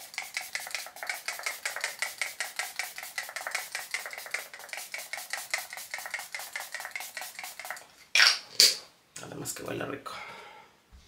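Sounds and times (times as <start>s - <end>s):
pump spray hissing spurts: 0.0s - 7.8s.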